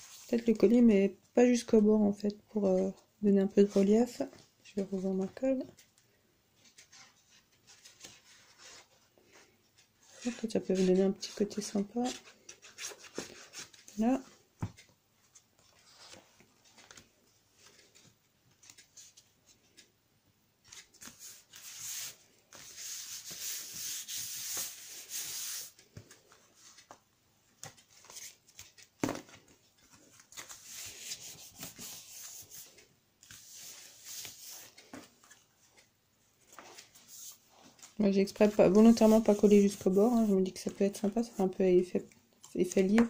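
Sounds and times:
paper rubbing and rustling: 20.6 - 27.0, 29.8 - 35.8, 36.4 - 41.6.

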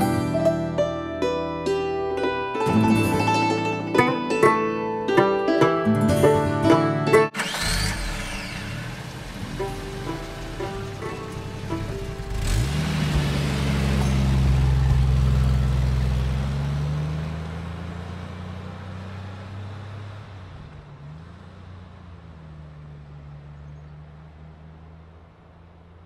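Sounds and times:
car driving past on gravel: 7.4 - 26.0.

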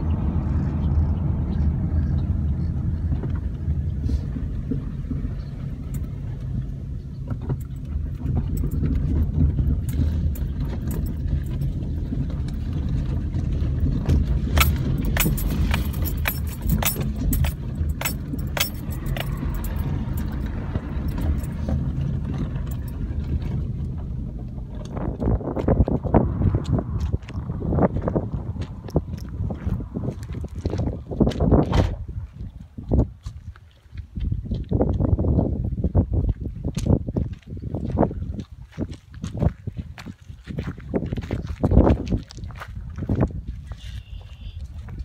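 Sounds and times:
road and engine rumble: 0.0 - 45.0
sharp light clicks and jingles: 14.6 - 21.7.

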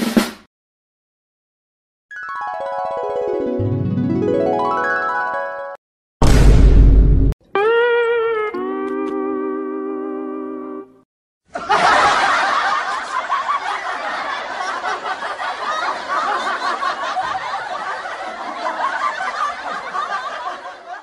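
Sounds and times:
crowd laughing: 11.5 - 21.0.

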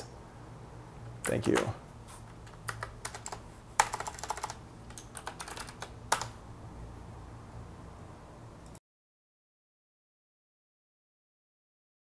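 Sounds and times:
typing on computer keyboard: 2.4 - 6.4.

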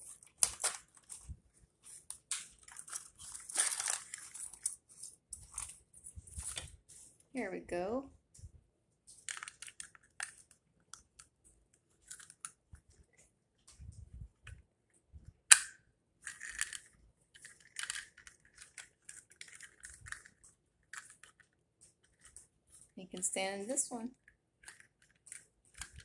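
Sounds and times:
sharp plastic snap: 15.5 - 15.8
plastic toy clicks and scrapes: 16.3 - 21.4, 24.6 - 26.0.

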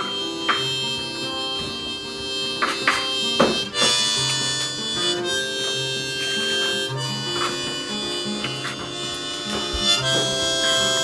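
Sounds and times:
harmonica music: 0.0 - 11.0
short knocks: 2.6 - 4.2.

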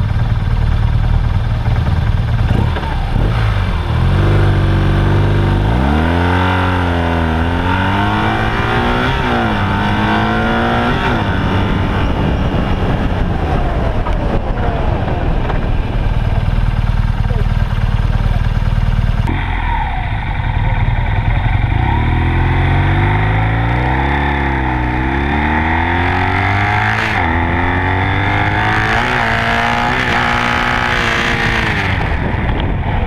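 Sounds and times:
motorcycle engine accelerating: 0.0 - 33.0
road noise: 0.0 - 33.0
wind rush on microphone: 7.4 - 17.1, 25.5 - 33.0.

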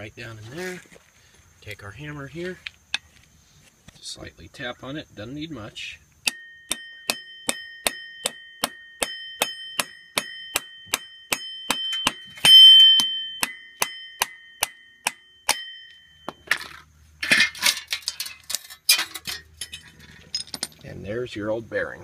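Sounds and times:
metal parts clattering onto concrete: 16.2 - 21.0.

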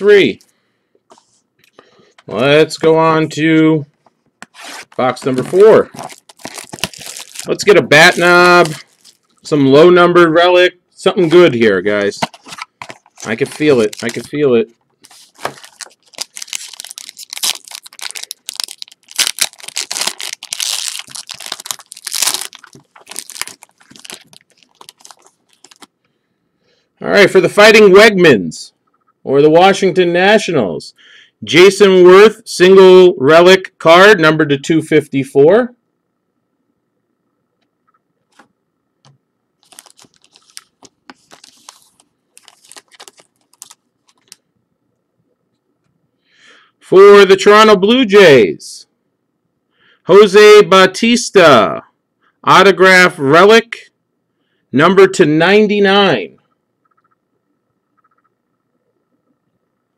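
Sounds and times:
cards clicking and rustling: 4.4 - 9.2, 12.2 - 14.4, 15.0 - 25.9, 39.6 - 44.4
plastic wrapping torn and crinkled: 4.5 - 9.4, 12.3 - 14.3, 15.0 - 25.9, 39.6 - 44.4.

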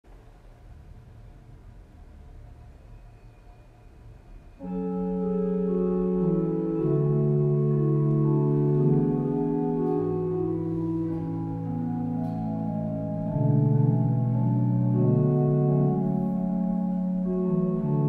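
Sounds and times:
church organ chords: 4.6 - 18.0
low organ bass note: 4.6 - 18.0.

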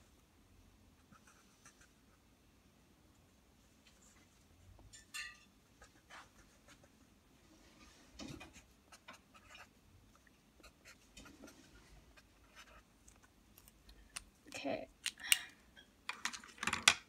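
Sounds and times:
felt-tip marker writing on paper: 8.5 - 9.7.

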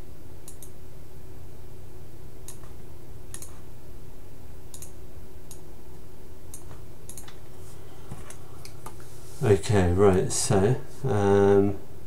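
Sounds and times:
steady low hum: 0.0 - 12.0
computer mouse clicks: 0.4 - 0.8, 2.5 - 3.6, 4.7 - 5.6, 6.5 - 7.4.

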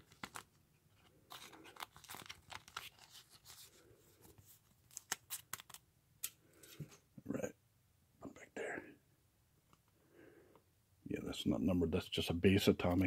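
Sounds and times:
plastic sleeve rustling: 0.0 - 5.8.

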